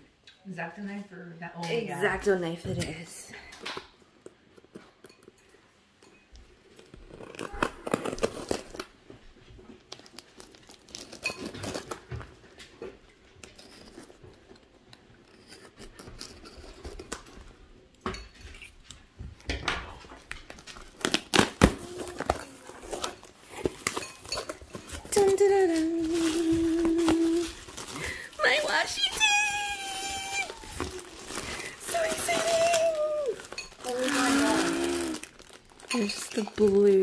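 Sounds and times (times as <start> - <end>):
cutlery and dishes clinking: 4.6 - 6.3, 11.1 - 12.2, 22.2 - 25.1
person eating: 30.1 - 31.8, 32.6 - 36.0.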